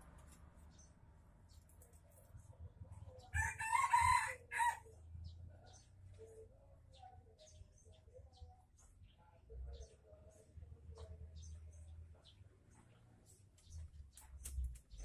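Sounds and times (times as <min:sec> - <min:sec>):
rooster crowing: 0:03.3 - 0:04.9.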